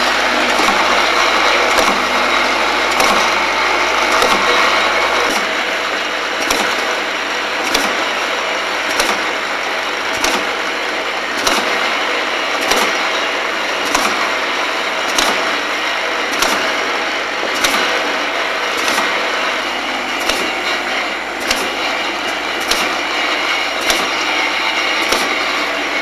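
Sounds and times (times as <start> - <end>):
machine hum and hiss: 0.0 - 26.0
sharp machine clack: 0.0 - 26.0.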